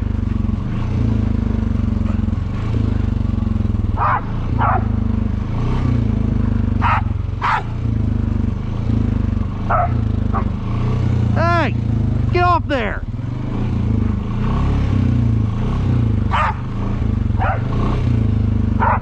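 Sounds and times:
atv engine running: 0.0s - 19.0s
dog barking: 2.0s - 2.3s, 4.0s - 5.0s, 6.8s - 7.8s, 9.7s - 10.6s, 16.3s - 16.7s, 17.4s - 17.7s, 18.8s - 19.0s.

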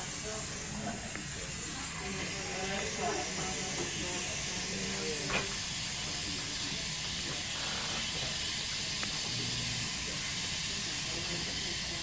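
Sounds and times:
dental suction hissing: 0.0s - 12.0s.

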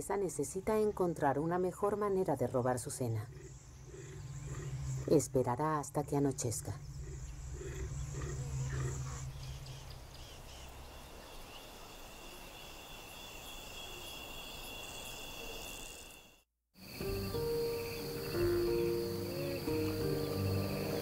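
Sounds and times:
insects chirring: 0.2s - 21.0s
leopard grunting: 3.3s - 5.2s, 7.0s - 9.4s.

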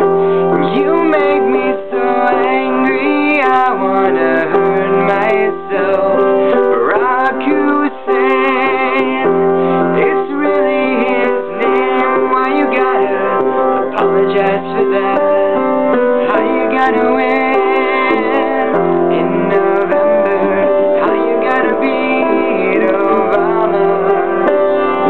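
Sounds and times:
person singing with vibrato: 0.0s - 25.0s
piano accompaniment: 0.0s - 25.0s.

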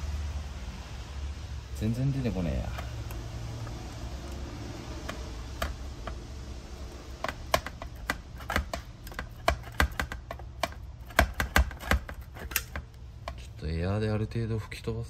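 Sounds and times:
hand tool clicking on metal: 7.1s - 13.4s.

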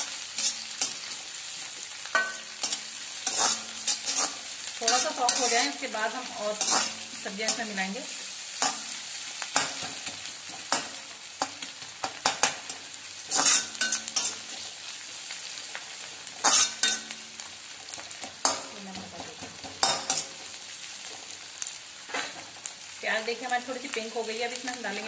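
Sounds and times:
onions sizzling in hot oil: 0.0s - 25.0s
spatula scraping a metal pan: 0.3s - 1.2s, 2.2s - 5.9s, 6.5s - 7.8s, 9.6s - 14.7s, 16.4s - 17.1s.

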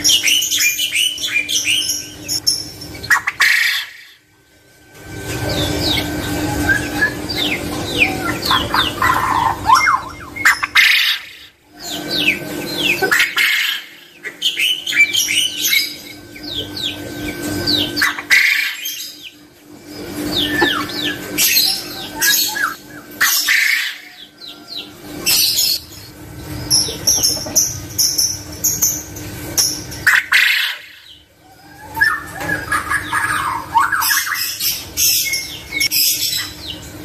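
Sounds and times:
steady hum: 0.0s - 37.0s
quail calling chirps: 3.0s - 4.2s, 5.6s - 19.3s, 20.3s - 24.9s, 30.0s - 34.6s.

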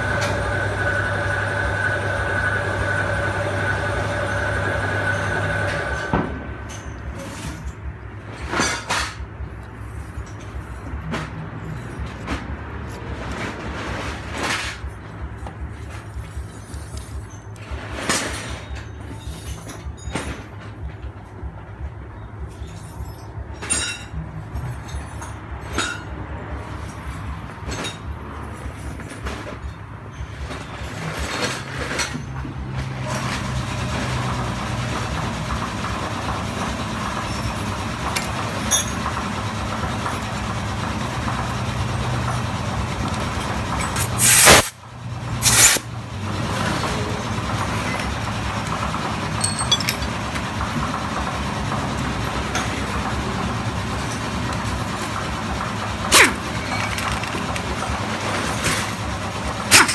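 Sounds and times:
vehicle engine running: 0.0s - 8.4s, 32.4s - 59.9s.

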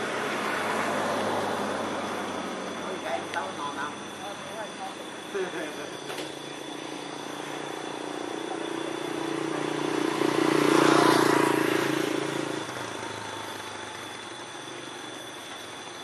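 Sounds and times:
car driving past: 9.2s - 13.9s.

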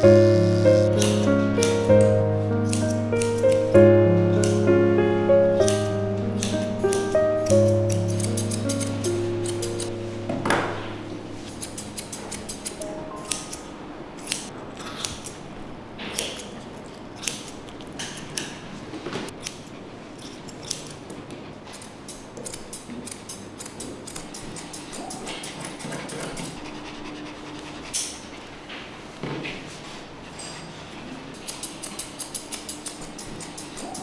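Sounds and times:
scissors snipping hair: 0.0s - 4.7s, 5.6s - 10.0s, 11.5s - 15.4s, 16.1s - 18.6s, 19.4s - 21.1s, 21.7s - 26.6s, 31.4s - 34.0s.

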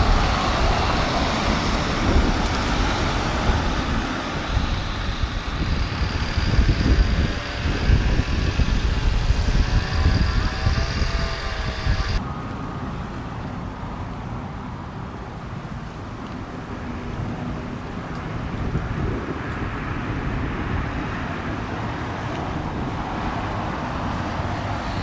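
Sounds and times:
faint wavering siren: 0.0s - 12.2s
wind rumbling on microphone: 0.0s - 12.2s, 15.4s - 25.0s
diesel engine hum: 0.0s - 13.8s
street traffic: 0.0s - 25.0s.

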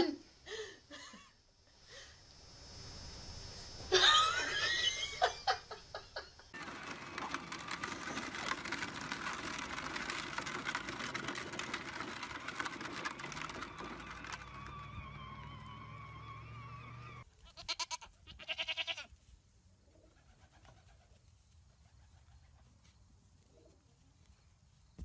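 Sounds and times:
electric motor hum: 6.6s - 17.2s
wheels crunching over gravel: 6.6s - 17.3s.

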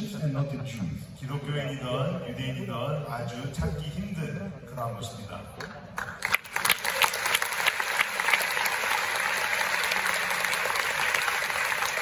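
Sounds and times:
audience applauding: 6.0s - 12.0s.

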